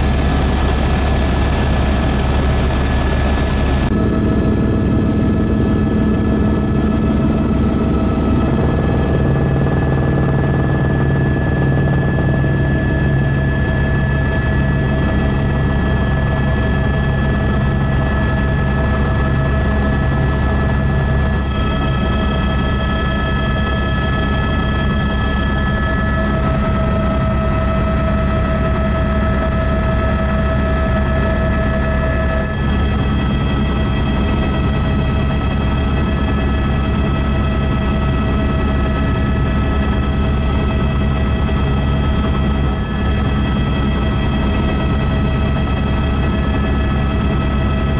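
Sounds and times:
helicopter rotor drone: 0.0s - 47.9s
high engine whine: 0.0s - 47.9s.

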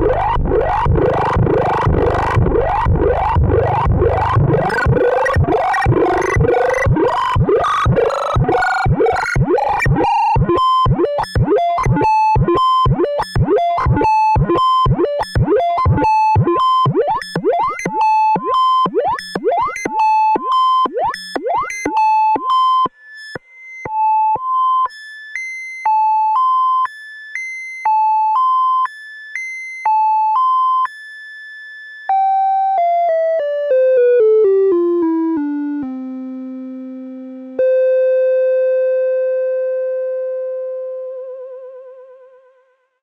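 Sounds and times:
sustained synthesizer tone: 0.0s - 19.8s
synthesizer sequence notes: 0.0s - 21.9s.

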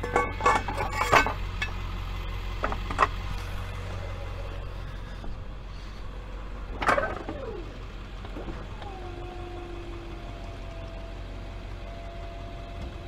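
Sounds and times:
sharp metallic clank: 0.0s - 1.8s
tow truck engine idling: 0.0s - 13.0s.

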